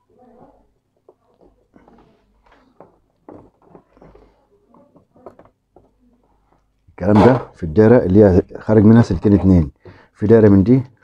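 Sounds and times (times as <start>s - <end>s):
faint clicks and scratches: 0.1s - 6.8s.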